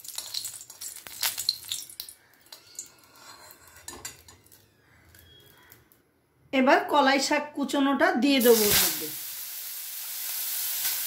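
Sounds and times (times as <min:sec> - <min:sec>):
chillies sizzling in hot oil: 0:00.0 - 0:03.1, 0:08.4 - 0:11.0
metal spatula scraping pan: 0:02.5 - 0:04.5.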